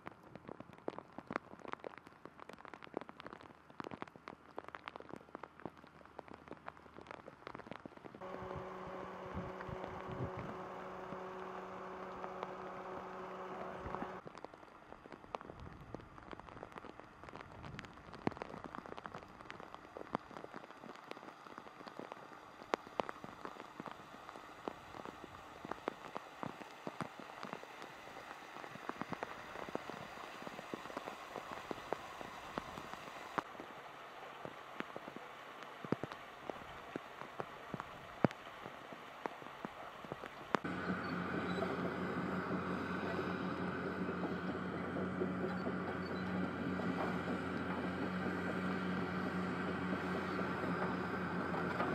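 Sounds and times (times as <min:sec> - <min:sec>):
rain on concrete pavement: 0:00.0 - 0:51.9
low hum: 0:08.2 - 0:14.2, 0:40.6 - 0:51.9.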